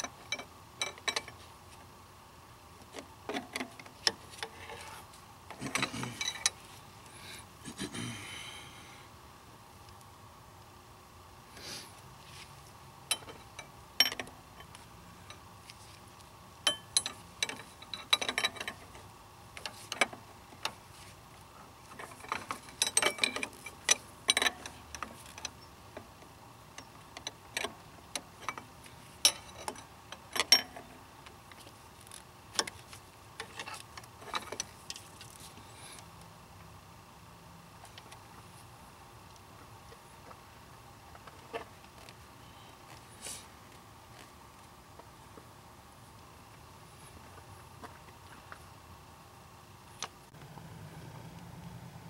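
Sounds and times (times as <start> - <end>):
hand tools clinking on metal: 22.3 - 24.8.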